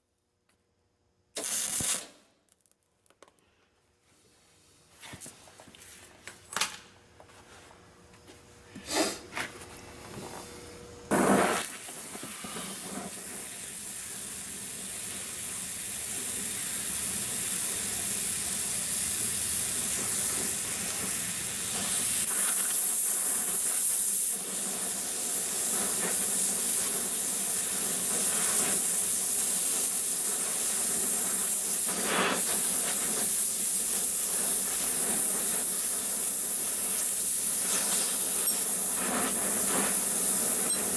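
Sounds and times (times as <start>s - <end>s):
gas torch flame hissing: 1.4s - 2.2s, 11.1s - 40.9s.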